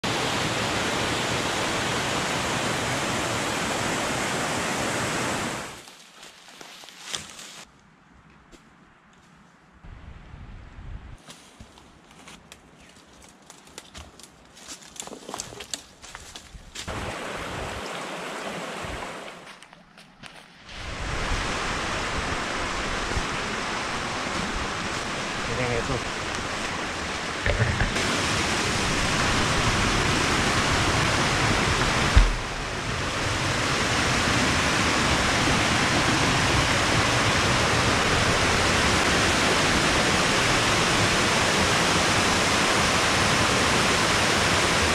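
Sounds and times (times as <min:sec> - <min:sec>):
waterfall rushing: 0:00.0 - 0:05.8, 0:16.9 - 0:19.4, 0:20.7 - 0:44.9.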